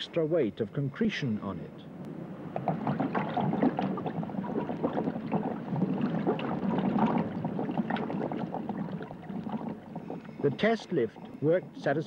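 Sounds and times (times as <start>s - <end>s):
air bubbling underwater: 2.4s - 12.0s.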